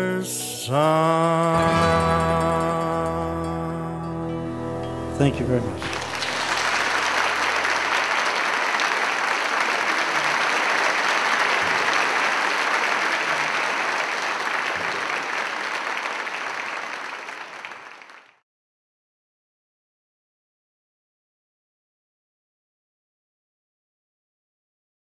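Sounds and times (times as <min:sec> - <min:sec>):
audience applauding: 0:05.7 - 0:18.4.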